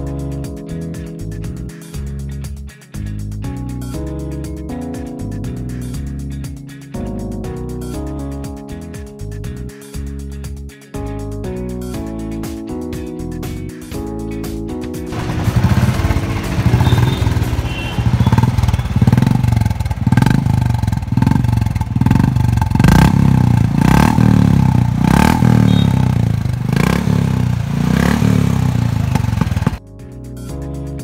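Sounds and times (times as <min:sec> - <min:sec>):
motorcycle engine revving: 0:15.1 - 0:29.8.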